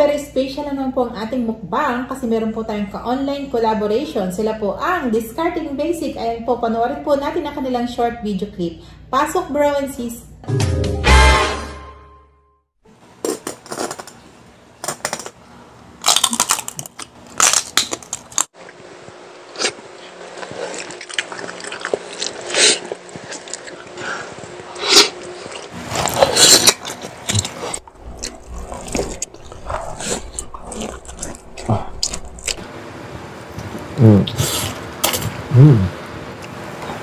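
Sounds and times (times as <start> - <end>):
crunchy bites and chewing: 16.0 - 18.5, 19.5 - 32.6.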